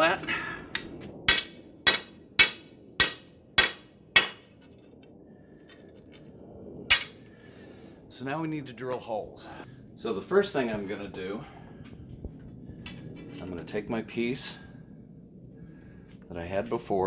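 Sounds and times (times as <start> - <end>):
hammer pounding metal pipe: 1.3 - 4.4.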